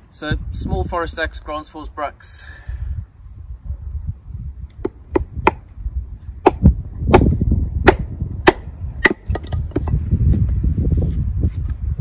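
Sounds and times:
wind rumble on microphone: 0:00.0 - 0:12.0
axe splitting wood: 0:04.8 - 0:05.6, 0:06.4 - 0:10.0.

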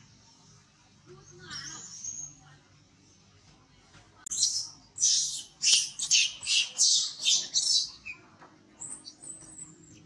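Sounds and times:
baby monkey screaming: 0:04.3 - 0:08.2.

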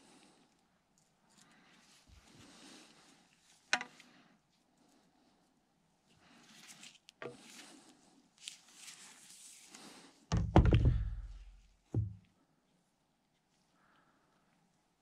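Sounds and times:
rustling of plastic pipe: 0:01.0 - 0:12.4
pipe clattering on wooden workbench: 0:10.3 - 0:11.4.

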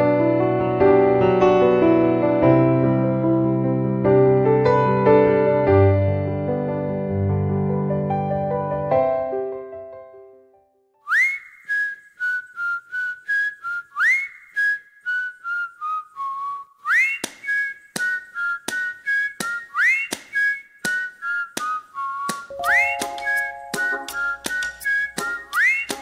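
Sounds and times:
whistled melody: 0:11.0 - 0:26.0
clicking beat: 0:22.3 - 0:26.0
low instrument notes: 0:22.5 - 0:26.0.

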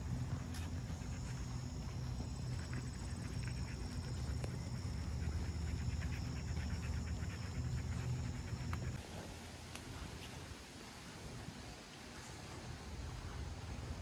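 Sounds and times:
dog panting: 0:00.0 - 0:09.3.

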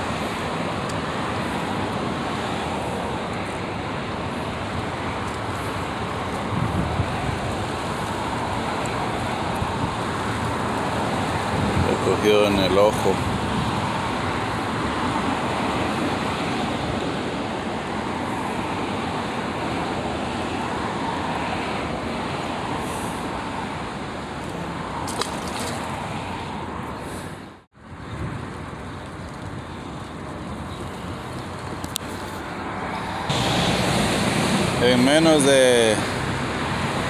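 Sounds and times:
steady rushing noise: 0:00.0 - 0:37.0.

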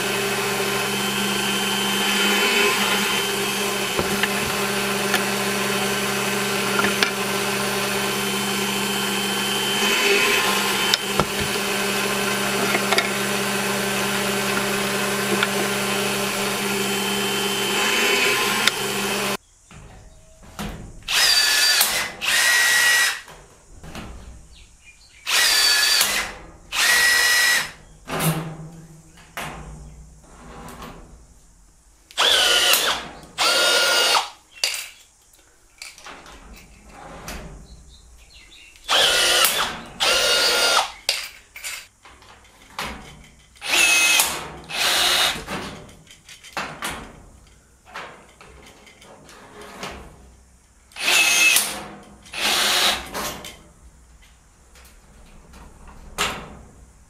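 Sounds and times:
rivet tool motor whirring: 0:00.0 - 0:19.4, 0:21.1 - 0:23.2, 0:25.3 - 0:27.8, 0:32.2 - 0:34.4, 0:38.8 - 0:41.2, 0:43.6 - 0:45.5, 0:50.9 - 0:53.1
tool handling clatter: 0:02.3 - 0:19.1.

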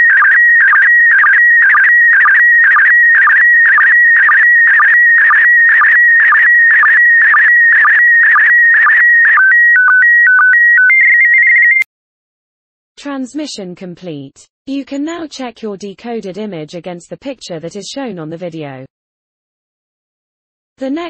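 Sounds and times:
repeating signal pulse: 0:00.0 - 0:11.8.

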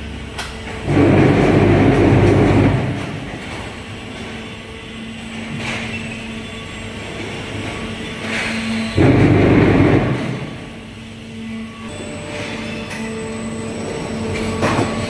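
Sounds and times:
rough rolling machinery rumble: 0:00.0 - 0:11.3
steady machine hum: 0:00.0 - 0:15.0.

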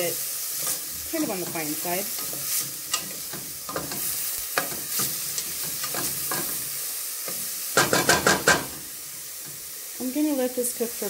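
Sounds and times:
onion sizzling in hot oil: 0:00.0 - 0:11.0.

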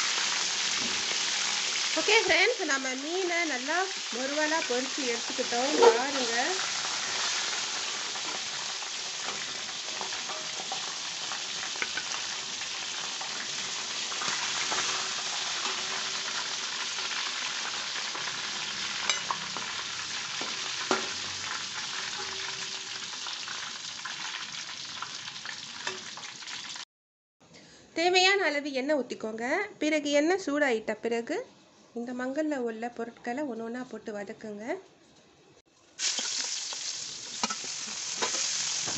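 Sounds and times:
fish frying in hot oil: 0:00.0 - 0:26.8, 0:36.0 - 0:38.9.

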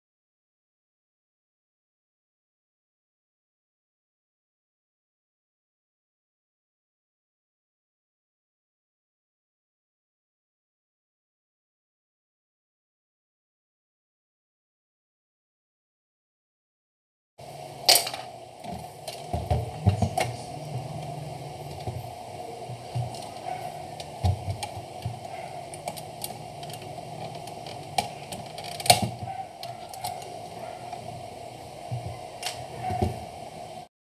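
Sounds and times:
faint steady hum: 0:17.4 - 0:33.9.

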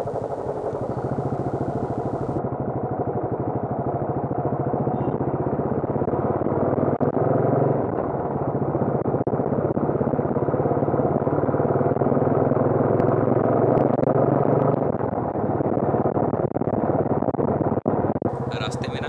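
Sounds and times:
single-cylinder motorcycle engine running: 0:00.0 - 0:02.4, 0:18.3 - 0:19.0.

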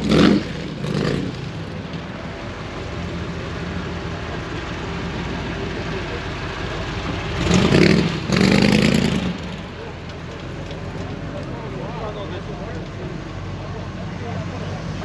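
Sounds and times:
car engine rolling past: 0:00.0 - 0:15.0.

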